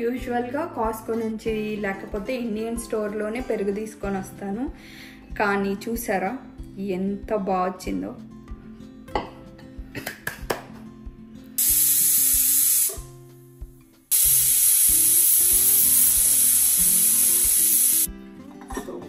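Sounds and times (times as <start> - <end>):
pressure cooker whistling: 11.6 - 13.0, 14.1 - 18.1.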